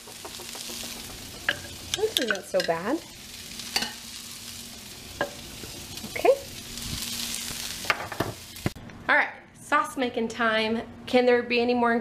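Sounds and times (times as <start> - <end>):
utensil clicking against pan: 0.0 - 2.8
onion sizzling in a frying pan: 0.0 - 8.8.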